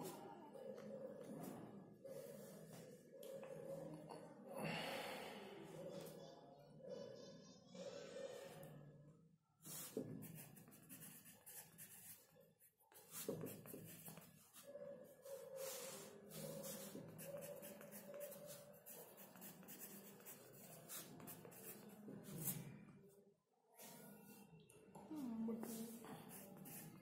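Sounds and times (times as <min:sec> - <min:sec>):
pencil scratching on paper: 0:09.6 - 0:22.7, 0:25.6 - 0:27.0.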